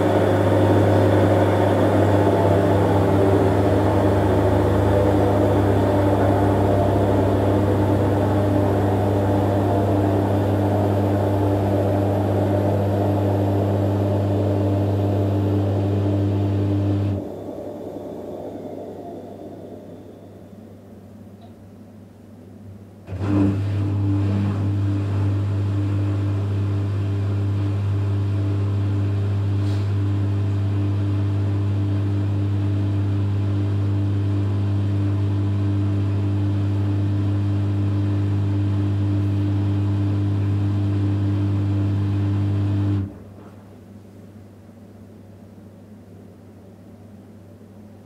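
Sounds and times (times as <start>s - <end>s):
washing machine drain pump humming: 0.0s - 21.6s, 23.0s - 43.4s.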